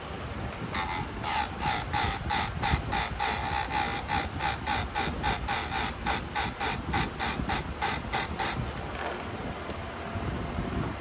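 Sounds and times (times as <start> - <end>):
file rasping on chain teeth: 0.7 - 8.6.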